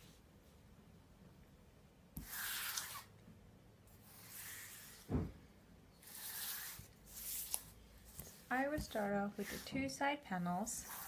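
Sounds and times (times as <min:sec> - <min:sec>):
soft thump: 0:05.1 - 0:05.4.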